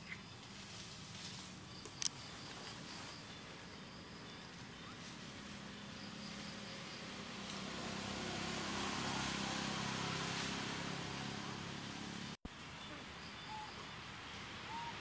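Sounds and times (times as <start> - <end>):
insects chirping: 0.0 - 11.1, 12.6 - 15.0
road noise: 0.0 - 15.0
vehicle engine passing: 4.2 - 12.4.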